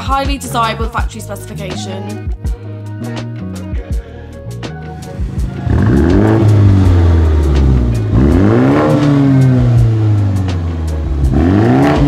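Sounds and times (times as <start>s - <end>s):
car engine revving: 4.5s - 12.0s.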